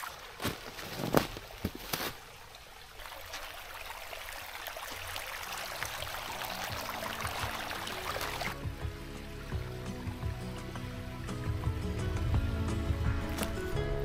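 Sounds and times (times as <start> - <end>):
stream trickling over stones: 0.0 - 13.7
background music: 6.0 - 14.0.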